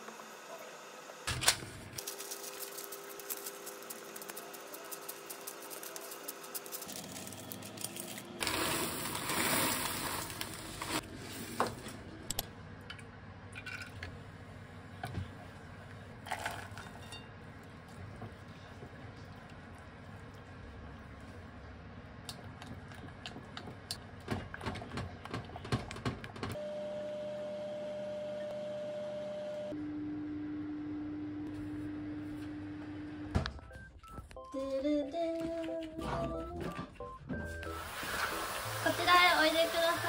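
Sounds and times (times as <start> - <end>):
baking beads poured and rattling: 2.0 - 11.0
parchment paper crinkling: 2.0 - 11.0.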